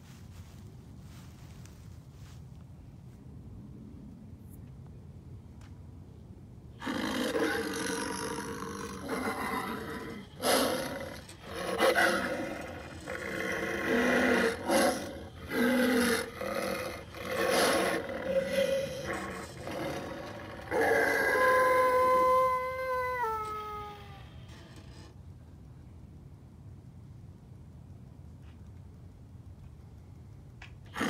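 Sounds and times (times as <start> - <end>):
howl-like wail: 6.8 - 25.0
recorded growls and roars: 6.8 - 25.1.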